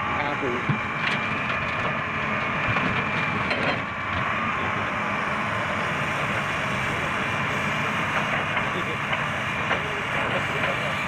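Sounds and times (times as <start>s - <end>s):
excavator engine running: 0.0s - 11.0s.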